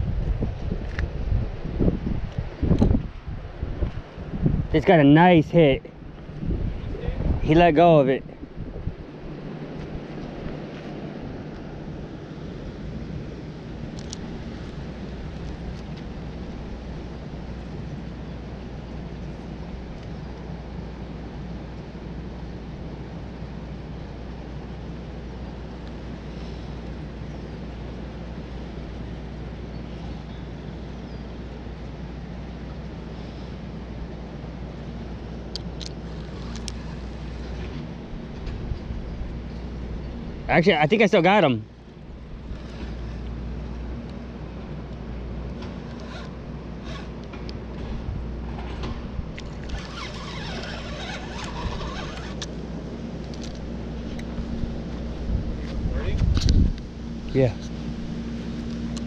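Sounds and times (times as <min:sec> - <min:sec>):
wind rumbling on microphone: 0:00.0 - 0:21.1, 0:34.0 - 0:40.6, 0:41.9 - 0:59.0
scratchy rustle: 0:49.7 - 0:52.5.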